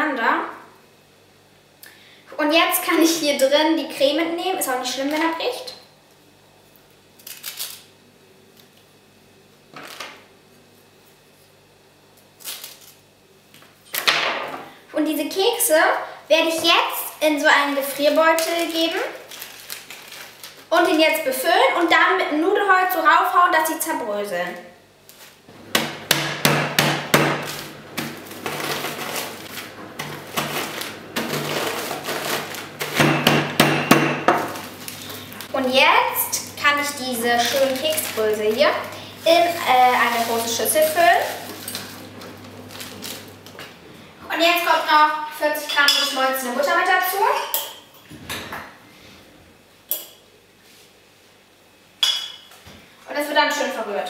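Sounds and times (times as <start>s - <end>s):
cookies crunching in plastic bag: 12.2s - 13.0s, 17.6s - 21.9s, 27.3s - 33.2s, 34.4s - 43.6s
knife scraping cookie filling: 27.4s - 33.2s.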